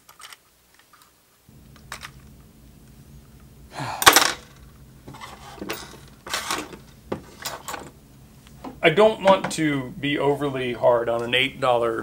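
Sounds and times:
plastic parts clicking and clattering: 0.0 - 1.2, 4.0 - 7.9.

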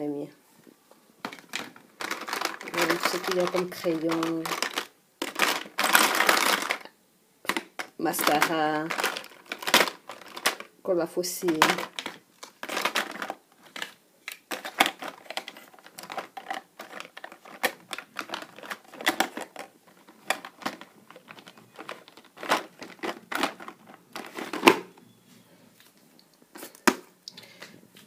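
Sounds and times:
makeup clicking and rattling in drawer: 1.2 - 6.9, 7.5 - 10.7, 11.5 - 24.8.

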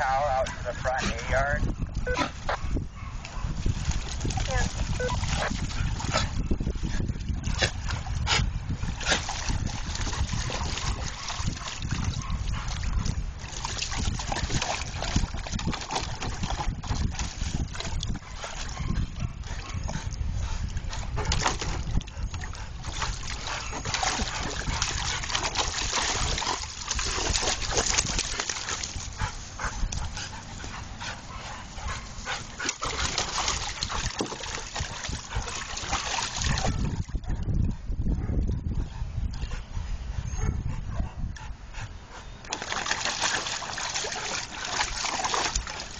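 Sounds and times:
dogs vocalising: 0.0 - 3.6, 4.5 - 6.6
water splashing in a pool: 3.2 - 19.7, 20.7 - 37.4, 42.4 - 45.9.

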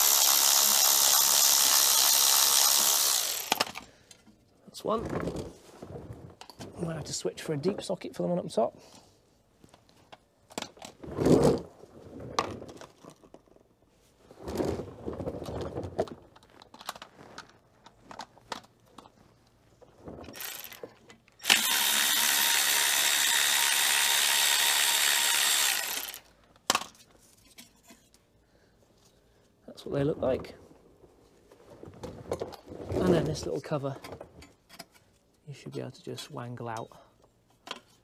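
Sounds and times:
power tool running: 0.0 - 3.8, 20.4 - 20.8, 21.4 - 26.3.

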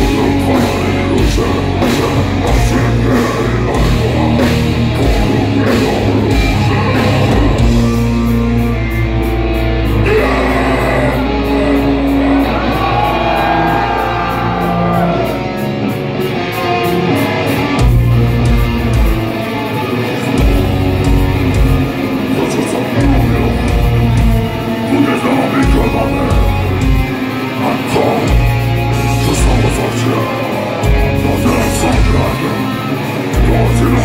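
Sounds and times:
person singing: 0.0 - 8.0, 9.9 - 15.7, 22.2 - 34.0
live heavy metal band: 0.0 - 34.0.

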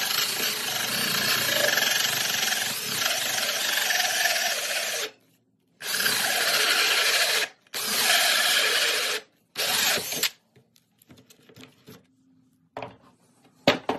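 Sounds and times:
drill cutting through board: 0.0 - 5.2, 5.8 - 10.4.

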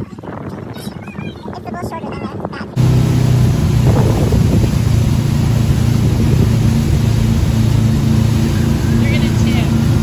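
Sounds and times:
churned water: 0.0 - 10.0
wind rushing: 2.4 - 10.0
boat engine drone: 2.8 - 10.0.

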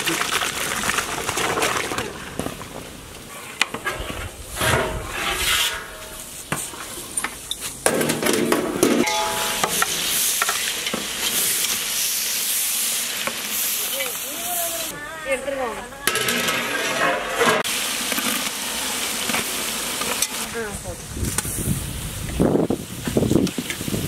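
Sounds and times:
metal ladle scraping a pot: 3.3 - 11.9
pots and utensils clinking: 4.6 - 11.9, 16.1 - 18.5, 19.2 - 20.5
onions sizzling in a pot: 9.0 - 14.9, 15.5 - 24.0.

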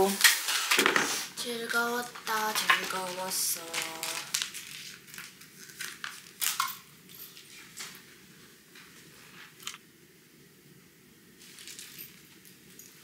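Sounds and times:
plastic pouch crinkling: 1.7 - 6.6.

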